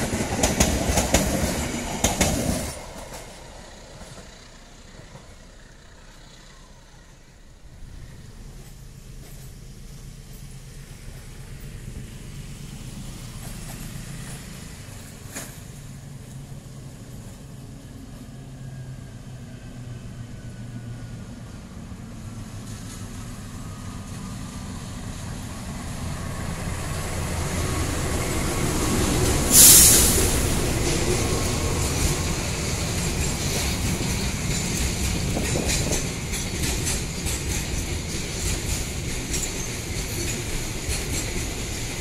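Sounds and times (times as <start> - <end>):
locomotive engine rumble: 0.0 - 42.0
loud hiss-like burst: 26.9 - 33.7.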